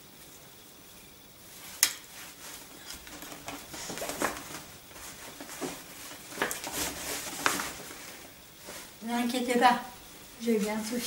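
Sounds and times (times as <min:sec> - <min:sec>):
fabric rustling: 0:01.5 - 0:09.4.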